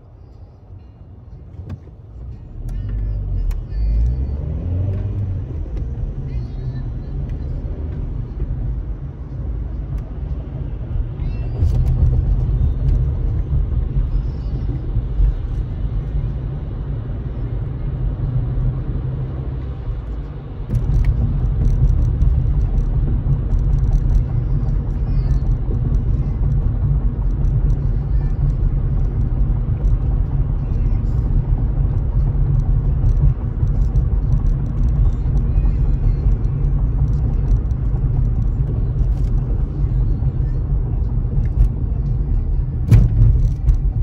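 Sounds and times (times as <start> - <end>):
car road noise rumble: 0.0 - 44.0.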